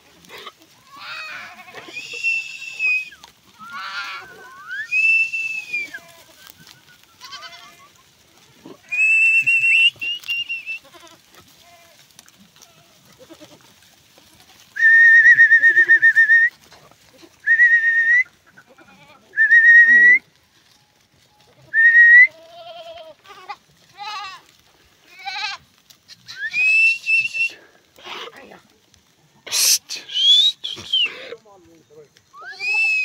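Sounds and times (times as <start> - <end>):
goats bleating: 0.1 - 15.0, 18.3 - 20.8, 21.4 - 31.4
person whistling warbling calls: 1.9 - 3.2, 4.3 - 6.0, 8.9 - 10.8, 14.8 - 16.5, 17.4 - 18.3, 19.4 - 20.2, 21.8 - 22.3, 26.3 - 27.6, 29.5 - 31.2, 32.3 - 33.0.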